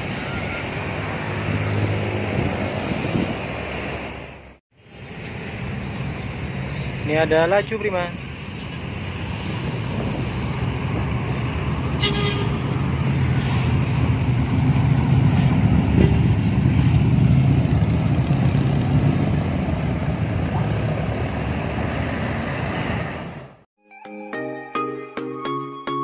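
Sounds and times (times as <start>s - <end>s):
road traffic: 0.0s - 23.7s
bus engine driving past: 8.2s - 23.6s.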